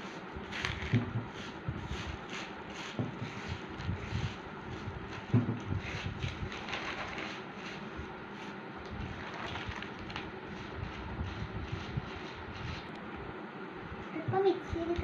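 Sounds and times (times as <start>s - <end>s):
rice grains rustling on paper: 0.0s - 12.9s
newspaper crinkling: 6.2s - 7.8s, 9.1s - 10.3s.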